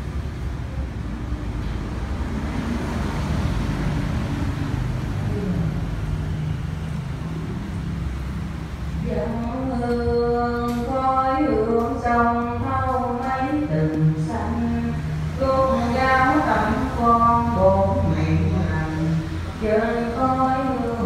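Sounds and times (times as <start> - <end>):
faint low voices: 5.1 - 6.6.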